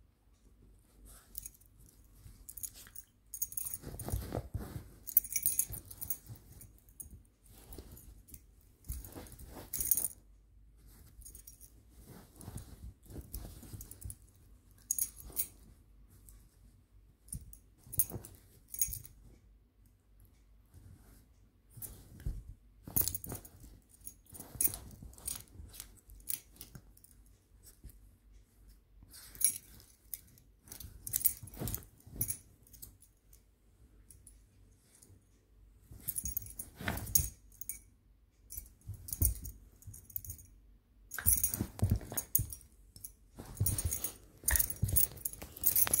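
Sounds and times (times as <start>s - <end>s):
dog rustling on fabric blanket: 0.7s - 10.2s, 10.8s - 16.8s, 20.7s - 28.0s, 29.1s - 33.0s, 35.9s - 37.4s, 41.2s - 42.7s, 43.3s - 46.0s.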